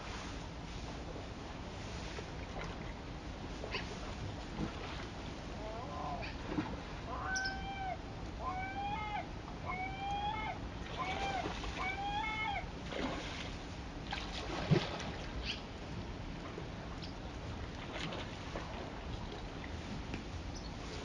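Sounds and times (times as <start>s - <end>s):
gull calling: 5.6s - 6.4s, 7.0s - 12.7s.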